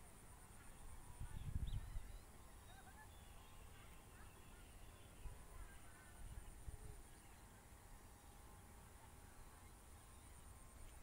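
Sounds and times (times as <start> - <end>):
wind rumble on microphone: 0.8 - 2.3
birds chirping and whistling: 1.4 - 5.3.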